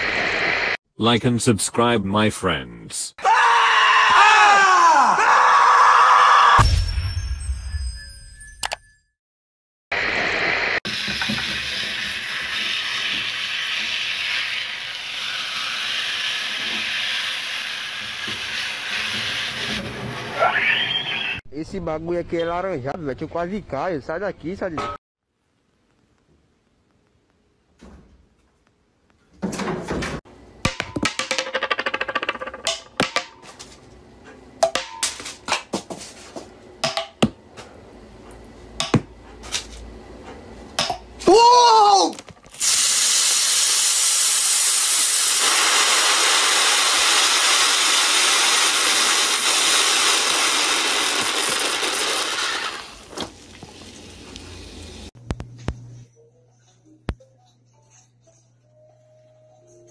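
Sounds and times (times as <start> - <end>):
food sizzling in a pan: 10.9 - 20.4, 42.6 - 55.1.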